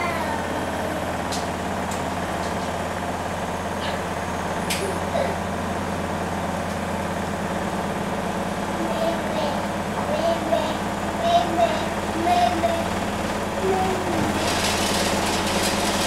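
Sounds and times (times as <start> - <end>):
washing machine humming: 0.0 - 16.0.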